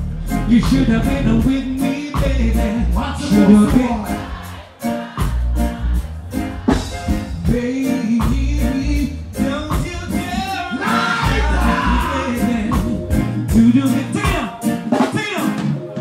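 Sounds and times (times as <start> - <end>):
reggae band playing: 0.0 - 16.0
man singing into a microphone: 0.4 - 4.3, 7.4 - 15.4.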